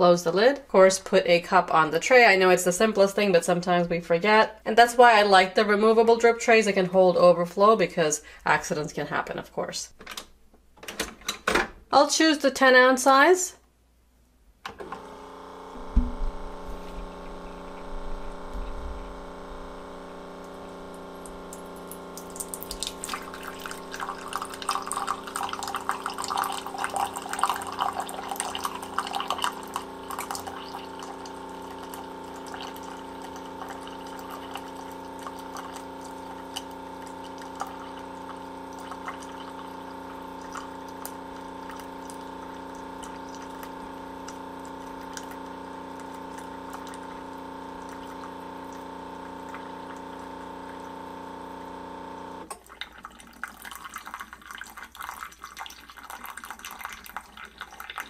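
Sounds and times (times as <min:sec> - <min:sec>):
water pump humming: 0:14.7 - 0:58.0
coffee pouring into a mug: 0:14.9 - 0:58.0.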